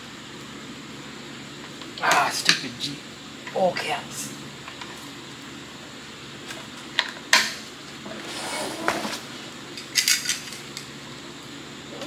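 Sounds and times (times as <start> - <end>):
metal parts rattling: 9.9 - 10.6.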